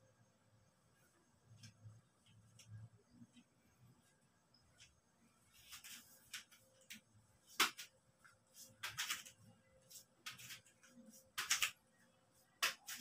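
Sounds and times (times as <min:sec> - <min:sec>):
clothes brushing and rustling: 0:04.8 - 0:11.4.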